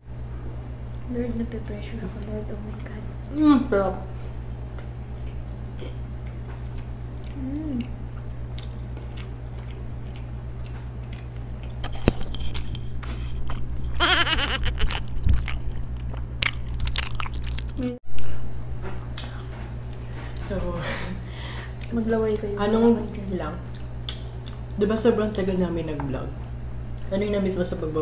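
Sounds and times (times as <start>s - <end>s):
low electrical hum: 0.0s - 28.0s
close chewing and biting: 6.3s - 18.0s
person humming: 7.3s - 8.0s, 14.0s - 15.4s, 17.8s - 18.0s.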